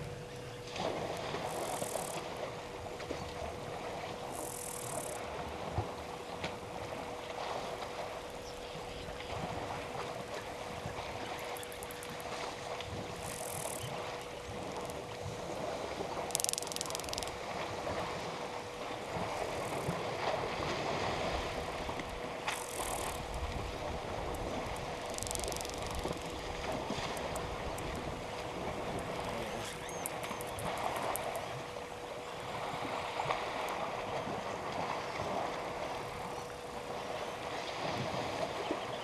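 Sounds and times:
water sloshing and splashing: 0.0 - 38.8.

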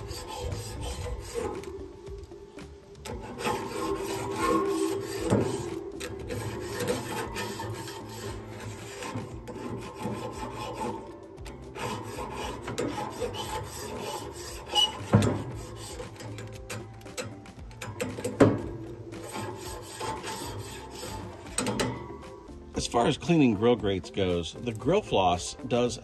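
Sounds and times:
metal tool scraping grill rod: 0.0 - 26.0.

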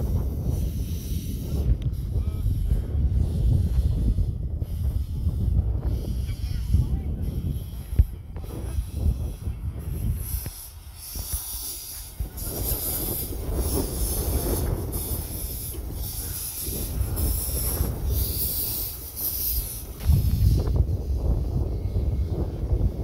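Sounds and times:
steam hissing in a regular beat: 0.0 - 23.0.

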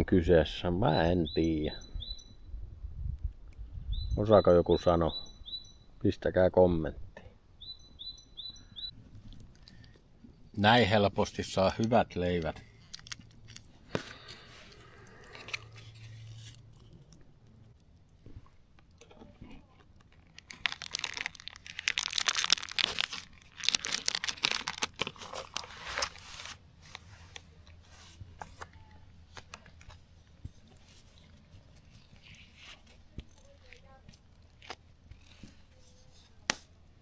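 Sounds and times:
crisp bread crunching: 11.6 - 26.5.

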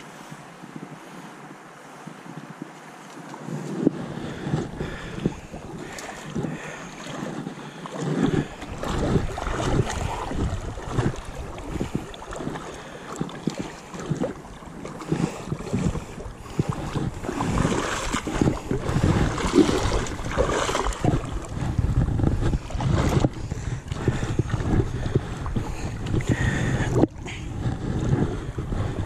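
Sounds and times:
river water splashing: 0.0 - 29.0
wind on microphone: 0.0 - 29.0.

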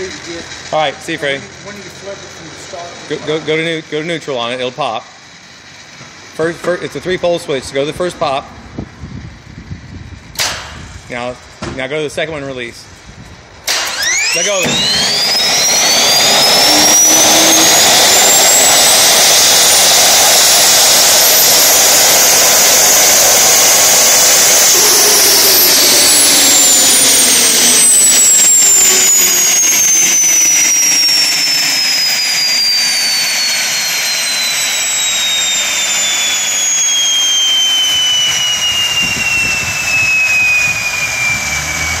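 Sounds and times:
gas turbine whine: 0.0 - 42.0
rushing jet noise: 13.6 - 42.0.

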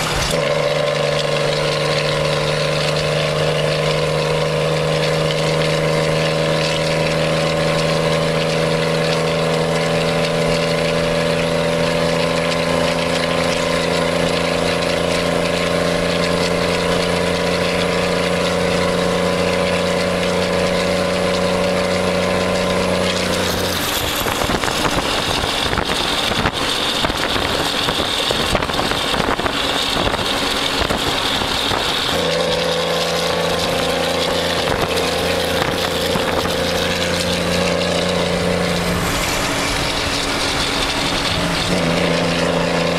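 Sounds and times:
diesel truck engine droning: 0.0 - 42.9.

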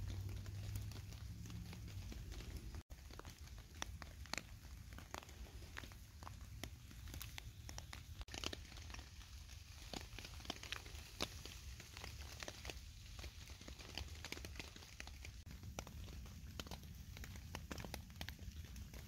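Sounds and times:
faint low rumble: 0.0 - 8.3
raindrops tapping: 0.0 - 19.0.

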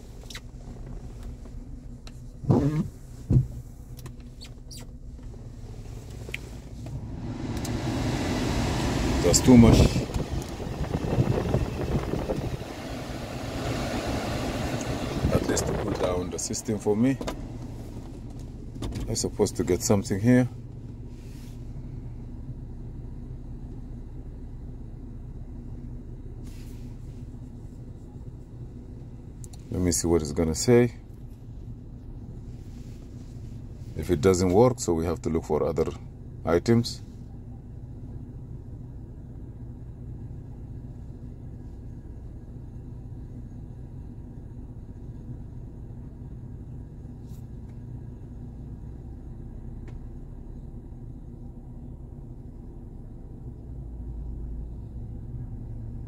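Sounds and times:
car engine idling: 0.0 - 56.0
thump: 3.3 - 3.6
blower fan: 5.6 - 18.6.

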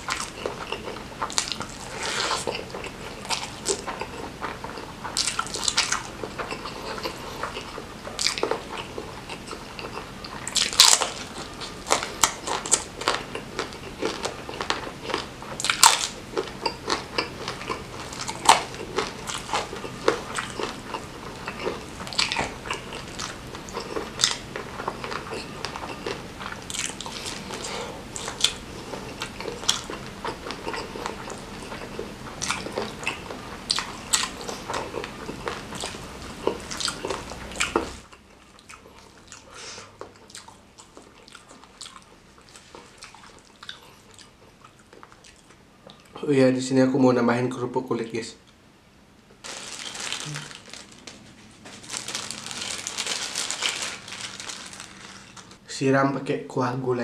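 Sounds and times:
wet chewing and mouth clicks: 0.0 - 46.2.

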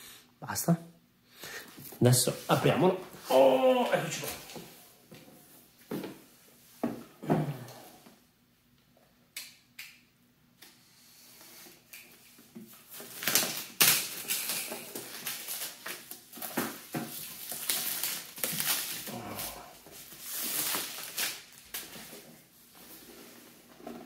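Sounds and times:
plastic shrink wrap crinkling: 12.7 - 22.4.

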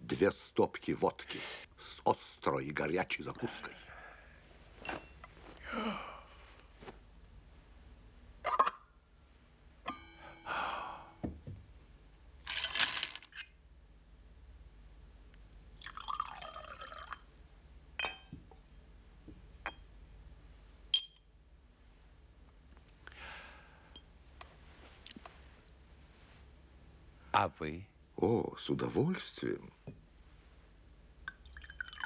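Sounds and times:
glassware clinking: 4.8 - 5.3, 9.9 - 10.5, 18.0 - 18.4, 19.7 - 19.9, 20.9 - 21.2
liquid pouring into glass: 15.8 - 17.3, 31.3 - 32.0.

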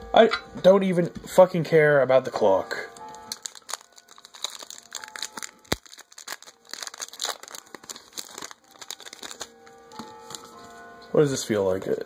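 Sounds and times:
foil wrapper crinkling: 3.0 - 10.8.

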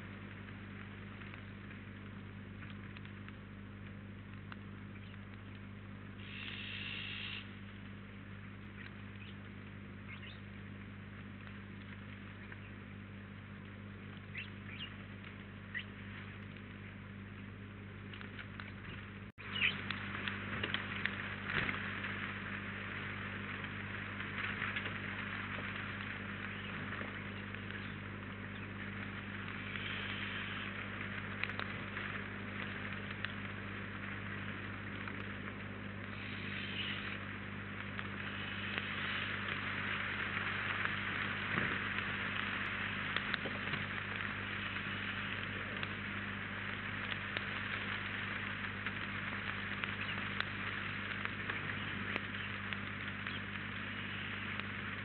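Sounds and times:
steady low hum: 0.0 - 55.0
snow pellets pattering: 19.4 - 55.0.

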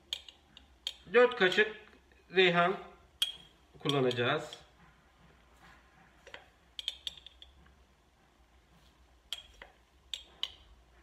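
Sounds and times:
teaspoon clinking against glass: 3.2 - 4.7.

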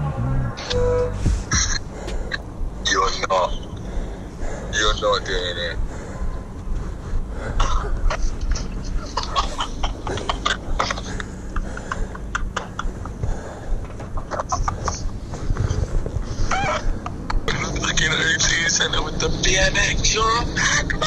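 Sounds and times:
wind rumble on microphone: 0.0 - 21.0
man laughing: 7.6 - 15.3.

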